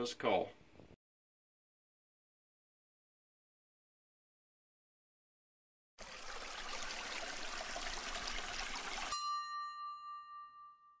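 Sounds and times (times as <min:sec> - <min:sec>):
running splashing water: 0:06.0 - 0:09.2
bright chime ringing: 0:09.1 - 0:11.0.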